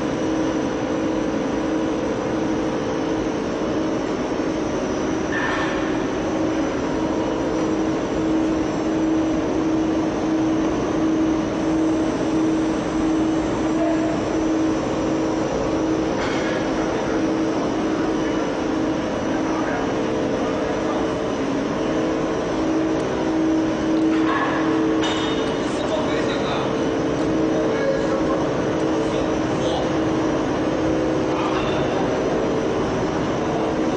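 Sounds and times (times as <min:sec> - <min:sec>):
kiln machinery roar and hum: 0:00.0 - 0:33.9.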